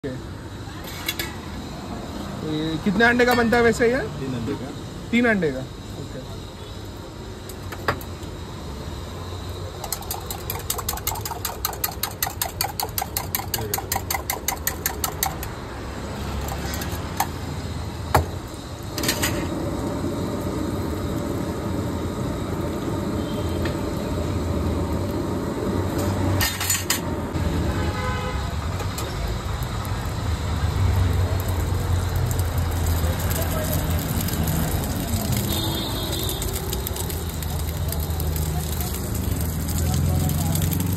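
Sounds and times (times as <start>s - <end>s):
frying sizzle: 0.0s - 40.9s
road traffic humming: 0.0s - 40.9s
utensil clicking against bowl: 9.9s - 15.5s.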